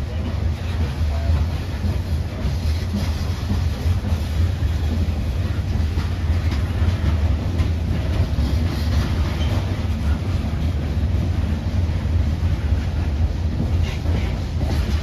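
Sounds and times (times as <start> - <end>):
freight train rumbling: 0.0 - 15.0.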